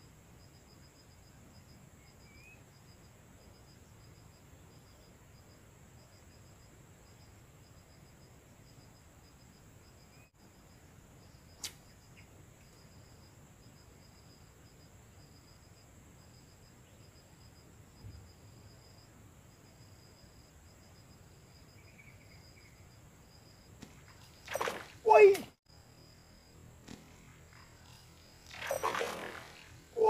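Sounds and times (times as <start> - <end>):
insects chirping: 0.0 - 30.0
sharp click: 11.6 - 11.8
steady high-pitched hum: 25.7 - 30.0.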